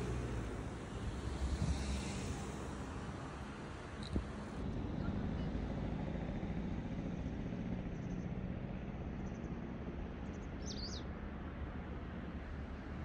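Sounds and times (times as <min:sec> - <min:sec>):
wind: 0:00.0 - 0:13.0
small bird chirping: 0:10.3 - 0:11.1.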